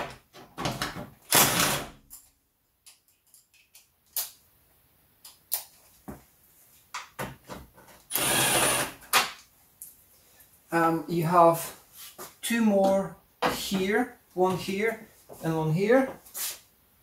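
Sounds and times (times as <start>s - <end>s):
cordless drill whine: 8.1s - 9.0s.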